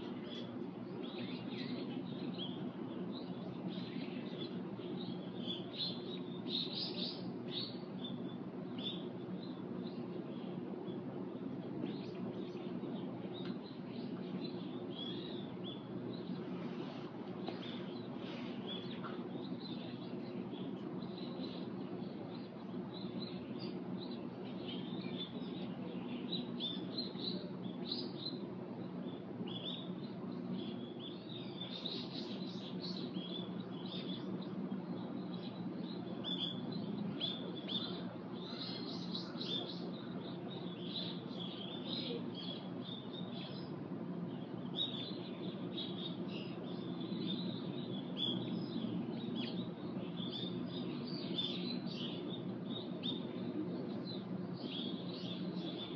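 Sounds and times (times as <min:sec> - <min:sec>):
small birds chirping: 0:00.0 - 0:55.9
steady low hum: 0:00.0 - 0:55.9.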